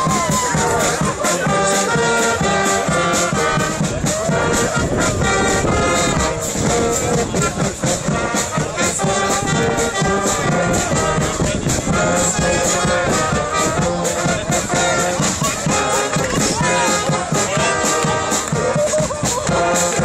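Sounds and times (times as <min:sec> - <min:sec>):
brass band playing: 0:00.0 - 0:20.0
drum hits: 0:00.0 - 0:20.0.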